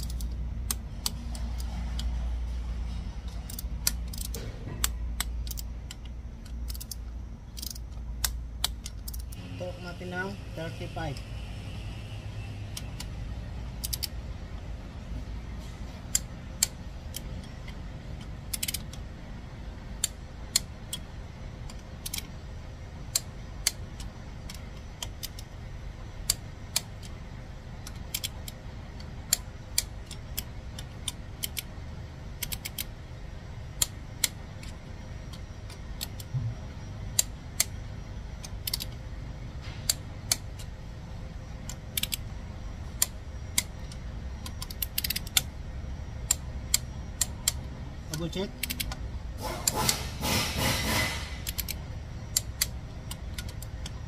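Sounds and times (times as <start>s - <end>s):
torque wrench clicking: 0.0s - 2.1s, 3.4s - 9.4s, 13.8s - 14.1s, 18.2s - 19.0s, 21.7s - 22.3s, 41.7s - 42.2s, 48.2s - 54.0s.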